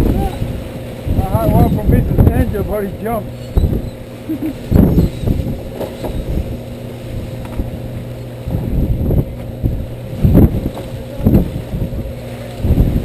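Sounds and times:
boat engine humming: 0.0 - 13.0
wind buffeting microphone: 0.0 - 13.0.

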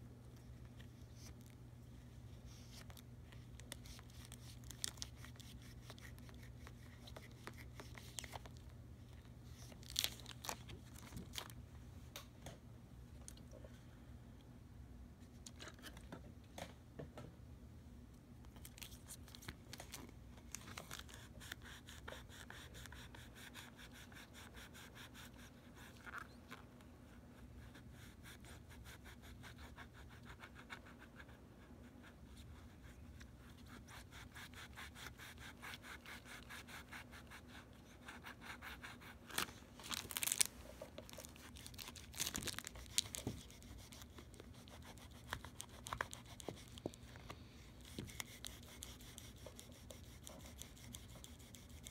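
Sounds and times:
plastic film sheet crinkling: 9.7 - 11.6, 39.3 - 43.6
cloth wiping plastic film: 39.2 - 46.8.

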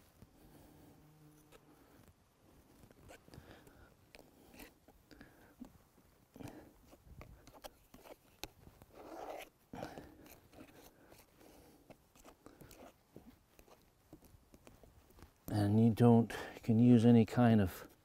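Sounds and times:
wet squishing and scraping of paint: 2.8 - 15.4.

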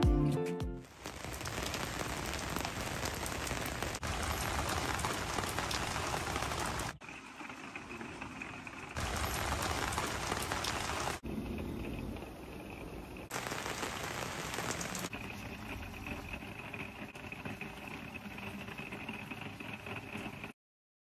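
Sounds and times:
guitar tune: 0.0 - 0.8
steady rain falling: 0.8 - 11.2, 12.1 - 20.5.

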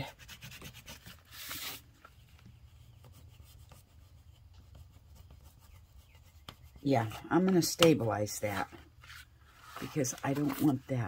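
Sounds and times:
wooden knife rubbing cardboard: 0.0 - 11.0.

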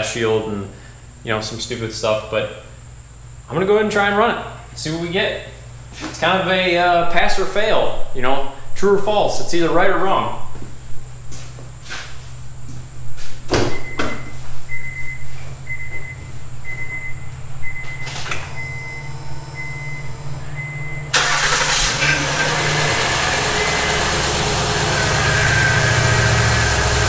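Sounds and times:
car engine starting and running: 17.7 - 27.0.

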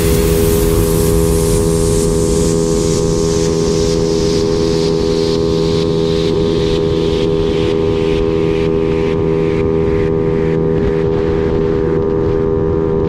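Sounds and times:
rushing hiss: 0.0 - 4.9
motorcycle engine drone: 0.0 - 13.0.

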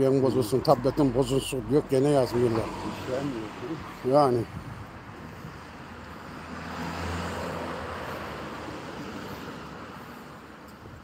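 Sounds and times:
car driving past: 6.3 - 10.1.

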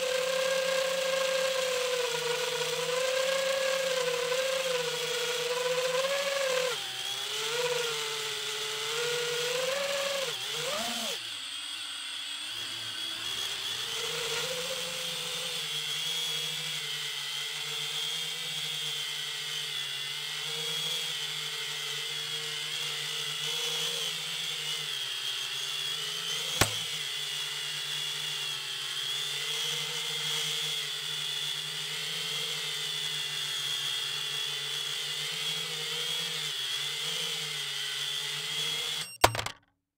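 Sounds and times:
quadcopter motors whining: 0.0 - 39.6
sharp click: 26.6 - 26.9, 39.0 - 39.6.

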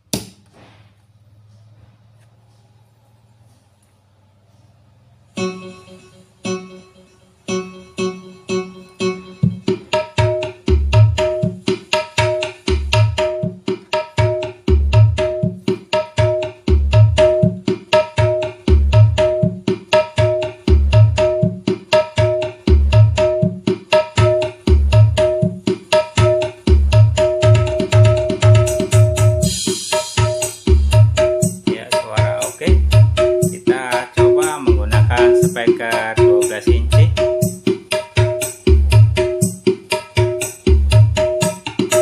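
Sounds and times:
hand drums and plucked strings music: 5.4 - 42.0
heavy bass drum beat: 9.4 - 42.0.

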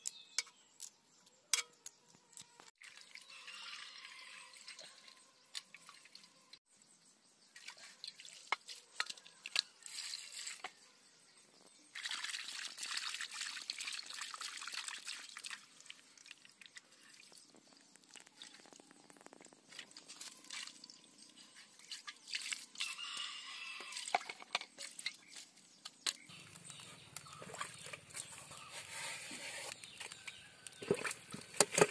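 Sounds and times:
water splashing in metal bowl: 2.8 - 6.4, 7.6 - 10.7, 11.9 - 18.8, 19.4 - 25.4.

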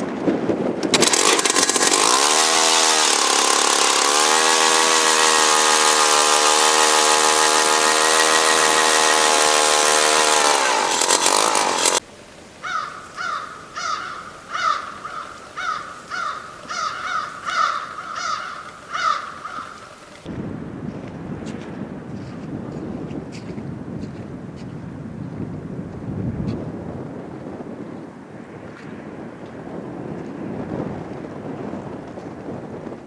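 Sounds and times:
ice auger motor running: 0.8 - 12.0
crow cawing: 12.6 - 20.0.

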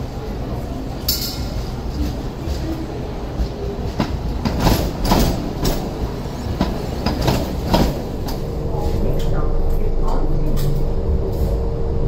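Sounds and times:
tram rumble: 0.0 - 12.0
tram wheels knocking over rail joints: 3.4 - 8.5.

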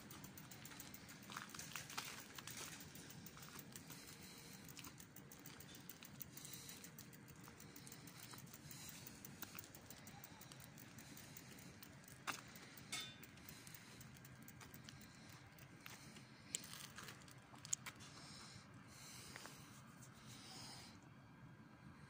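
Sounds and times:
sharp clicks: 0.0 - 17.9
low steady hum: 0.0 - 22.0
faint footsteps: 14.4 - 18.2.

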